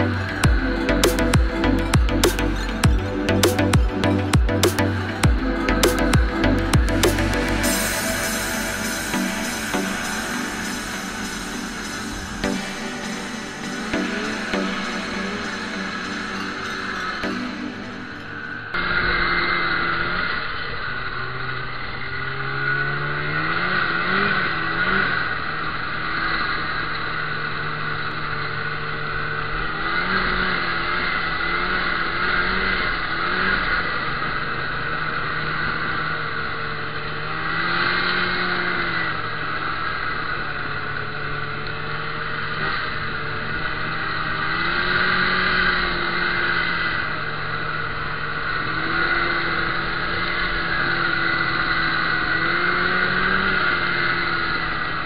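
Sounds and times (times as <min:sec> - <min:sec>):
snowmobile engine revving: 0:42.2 - 0:55.0.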